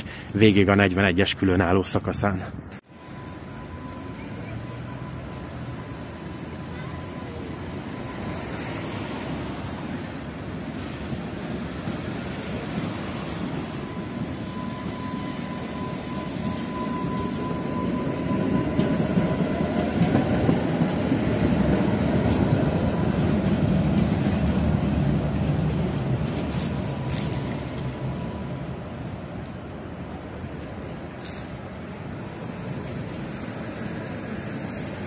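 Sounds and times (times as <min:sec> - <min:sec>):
thin steady whine: 0:00.0 - 0:35.0
tram wheels rumbling on rails: 0:00.0 - 0:35.0.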